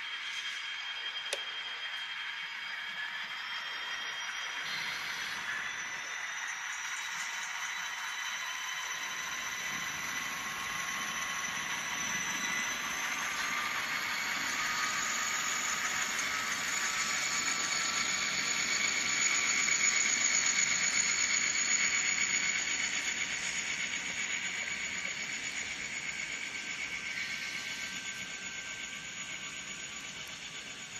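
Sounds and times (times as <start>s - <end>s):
model freight cars rolling: 0.0s - 30.9s
model locomotive engine sound: 0.0s - 30.9s.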